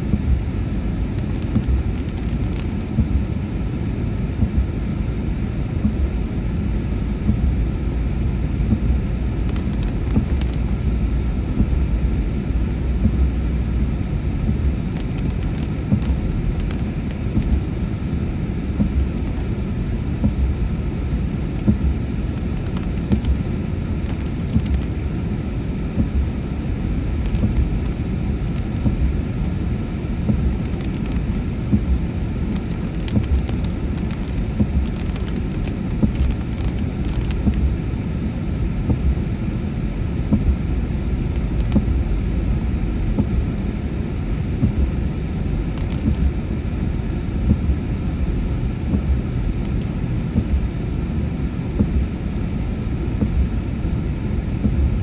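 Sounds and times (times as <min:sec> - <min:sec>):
tyres and engine rumble: 0:00.0 - 0:04.8, 0:05.8 - 0:39.2
raindrops tapping windshield: 0:01.2 - 0:03.2, 0:08.7 - 0:10.7, 0:14.5 - 0:17.7, 0:18.8 - 0:19.6, 0:21.6 - 0:23.4, 0:24.0 - 0:25.0, 0:27.1 - 0:29.1, 0:30.3 - 0:37.8, 0:41.3 - 0:42.0, 0:45.8 - 0:46.3.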